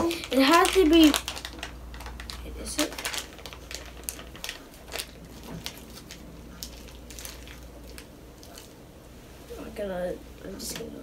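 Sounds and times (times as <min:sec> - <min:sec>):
plastic wrapper crinkling: 0:00.0 - 0:08.8.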